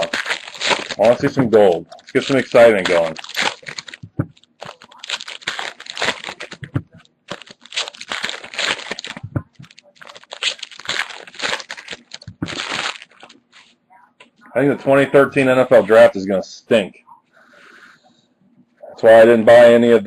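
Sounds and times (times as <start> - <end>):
foil wrappers crinkling: 0.0 - 13.8.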